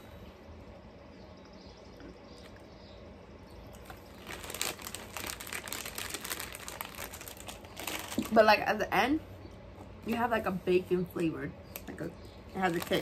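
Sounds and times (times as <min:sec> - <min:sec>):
plastic packaging crinkling: 0:03.7 - 0:08.5, 0:12.5 - 0:13.0.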